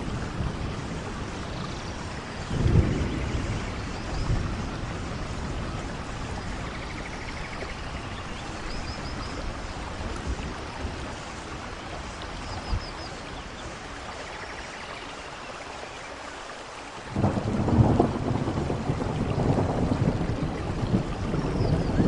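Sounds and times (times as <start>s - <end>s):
thunder rumbling: 0.0s - 11.2s, 17.1s - 22.0s
heavy rain: 0.0s - 22.0s.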